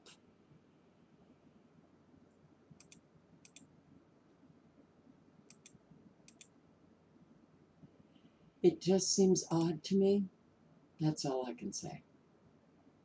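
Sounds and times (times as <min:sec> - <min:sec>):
computer mouse clicks: 0:02.8 - 0:03.7, 0:05.5 - 0:06.5.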